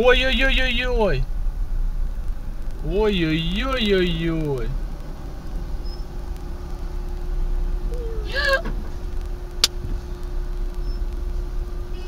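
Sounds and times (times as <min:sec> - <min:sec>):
voice: 0:00.0 - 0:01.3, 0:02.8 - 0:04.8, 0:07.9 - 0:08.7
car engine and traffic rumble: 0:00.0 - 0:12.0.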